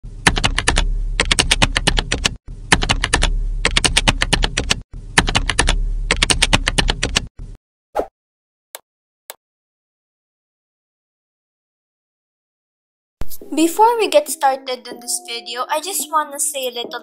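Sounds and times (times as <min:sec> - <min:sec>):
low hum: 0:00.2 - 0:01.2, 0:02.5 - 0:04.2, 0:05.0 - 0:06.3
rapid keyboard typing: 0:00.2 - 0:07.3.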